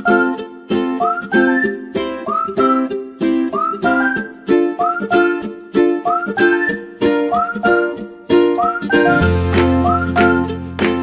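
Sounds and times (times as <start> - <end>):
sliding melody: 0.0 - 11.0
strummed chords: 8.6 - 11.0.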